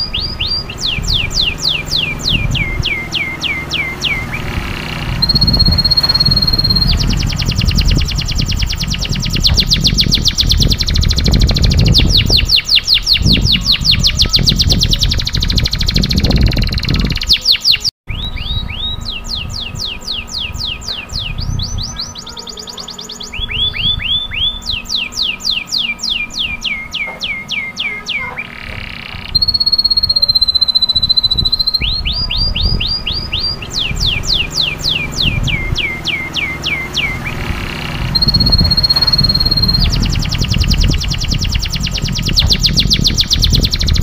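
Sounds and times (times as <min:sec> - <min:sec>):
canary singing trills: 0:00.0 - 0:44.0
held steady whistle: 0:05.1 - 0:08.0, 0:29.3 - 0:41.6
low rumble: 0:30.9 - 0:44.0.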